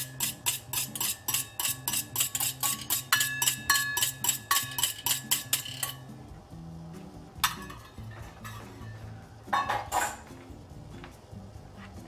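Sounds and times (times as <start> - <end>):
utensil clinking metal bowl: 0.0 - 6.2, 7.4 - 10.3
soft background music: 0.0 - 12.0.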